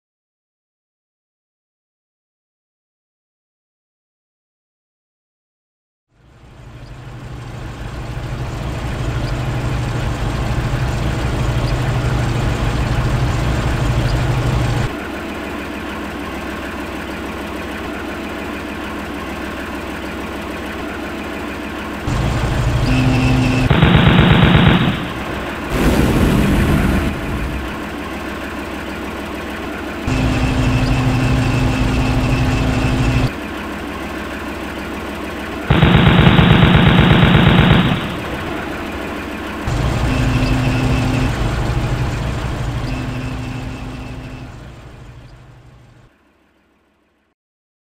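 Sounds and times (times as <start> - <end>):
tank engine with track noise: 6.1 - 47.3
mechanical whine: 6.4 - 46.1
automatic cannon fire: 23.1 - 27.8, 35.7 - 38.6.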